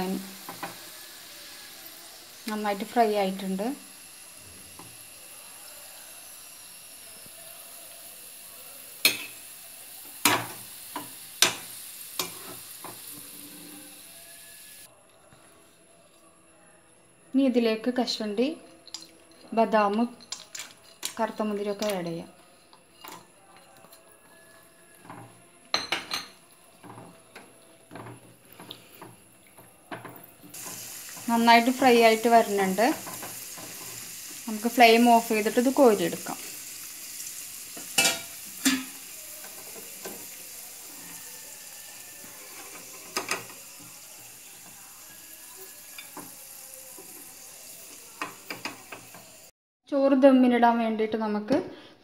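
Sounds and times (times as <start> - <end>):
carrots sizzling in hot oil: 0.0 - 14.9, 30.2 - 49.5
soft frying hiss: 0.0 - 49.6.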